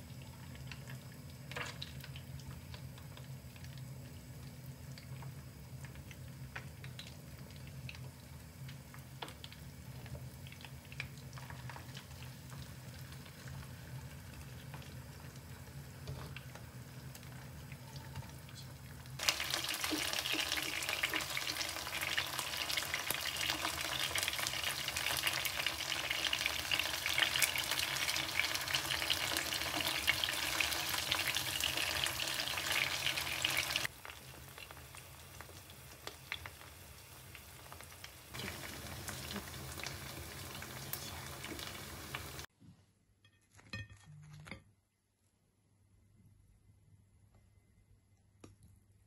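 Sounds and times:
chicken sizzling in oil: 0.0 - 42.5
spoon and spatula stirring: 43.2 - 44.7.

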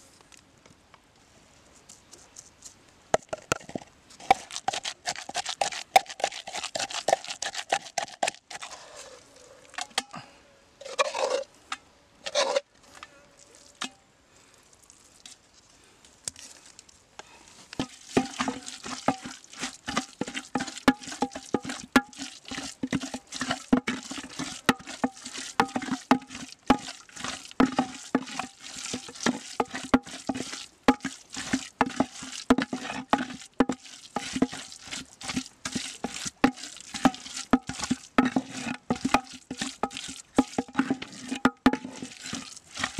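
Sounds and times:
pestle pounding in mortar: 3.2 - 8.7, 17.8 - 42.9.

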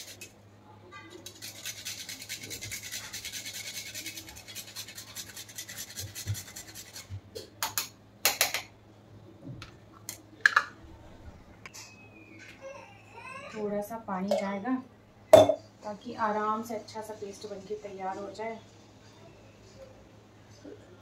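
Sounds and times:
nutmeg scraping on metal grater: 1.2 - 7.1.

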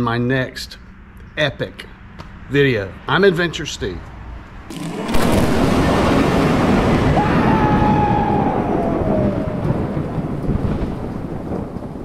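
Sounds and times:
heavy rain: 4.7 - 12.0
thunder rolling: 4.7 - 12.0.

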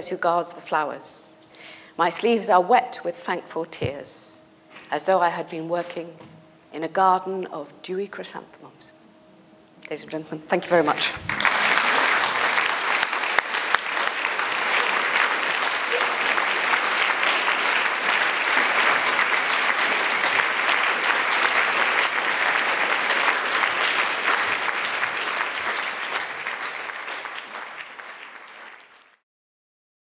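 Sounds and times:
audience applauding: 11.0 - 29.2.

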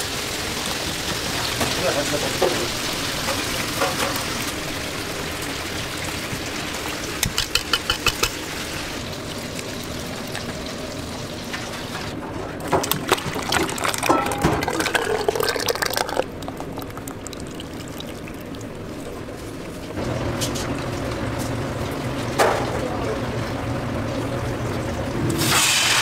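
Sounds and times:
whisk clinking in metal bowl: 7.2 - 8.3.

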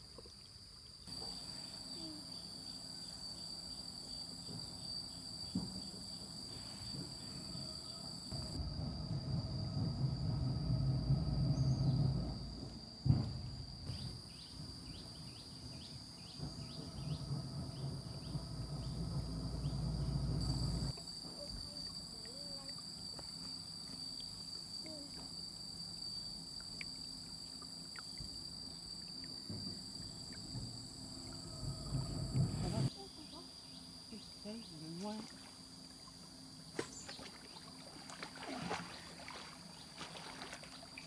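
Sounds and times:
insects droning high whine: 0.0 - 41.0
low rumble: 8.3 - 14.1, 14.9 - 20.9, 30.1 - 32.9.

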